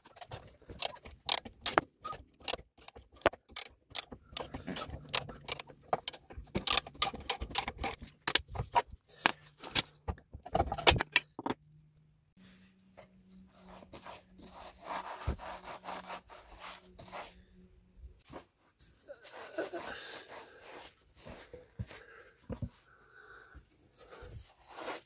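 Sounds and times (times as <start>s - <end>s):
ratchet wrench clicking: 6.6s - 8.4s.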